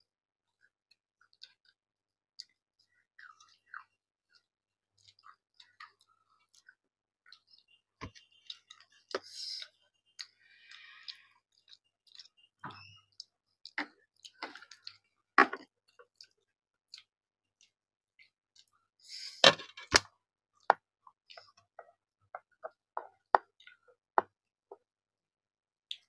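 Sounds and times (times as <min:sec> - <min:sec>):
chewing: 0:00.5 - 0:01.8, 0:02.4 - 0:18.8, 0:20.6 - 0:23.9.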